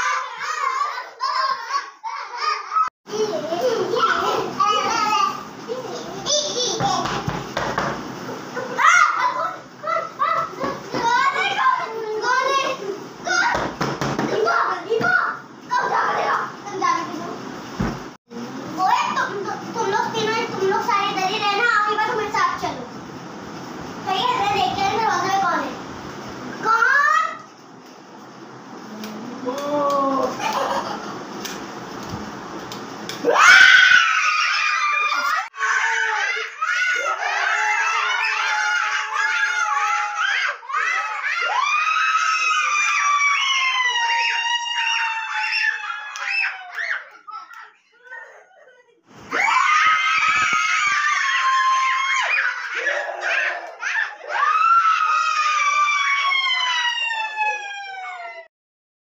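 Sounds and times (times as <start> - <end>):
child screaming: 33.2 - 47.2, 49.3 - 58.5.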